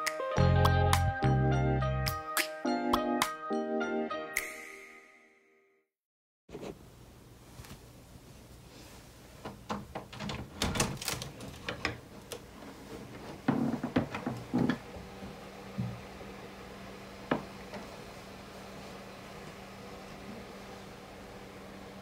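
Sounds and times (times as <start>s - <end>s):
knocks and rattles at wooden cupboard: 13.4s - 14.8s.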